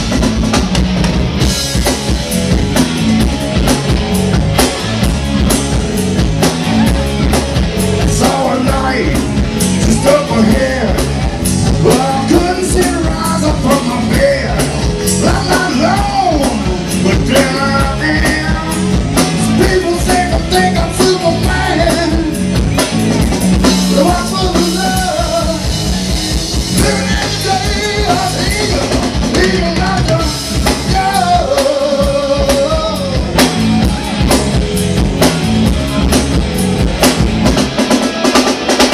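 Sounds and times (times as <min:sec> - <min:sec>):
drum kit: 0:00.0 - 0:38.9
electric bass: 0:00.0 - 0:38.9
electric guitar: 0:00.0 - 0:38.9
man singing: 0:08.0 - 0:22.6, 0:23.6 - 0:26.0, 0:26.7 - 0:33.6.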